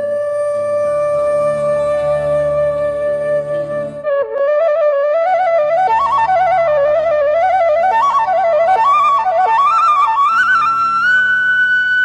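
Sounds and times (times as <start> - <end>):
low steady drone: 0.0 - 4.1
bamboo flute melody: 0.0 - 12.0.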